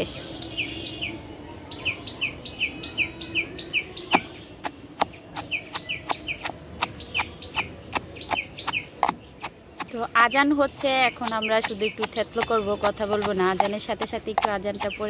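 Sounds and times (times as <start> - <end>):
small bird chirping: 0.0 - 15.0
wooden pestle pounding in mortar: 5.0 - 15.0.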